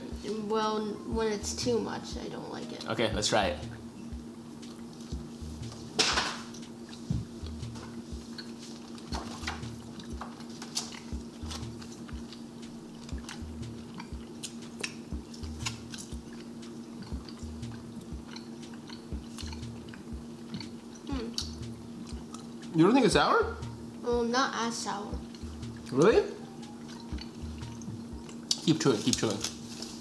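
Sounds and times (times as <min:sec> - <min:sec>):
low hum: 0:00.0 - 0:10.2, 0:10.9 - 0:24.2, 0:25.1 - 0:28.4
gum chewing: 0:08.3 - 0:22.8.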